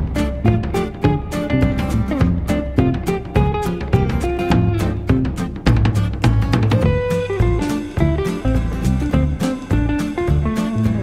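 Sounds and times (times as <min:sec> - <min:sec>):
background music with drum beat: 0:00.0 - 0:11.0.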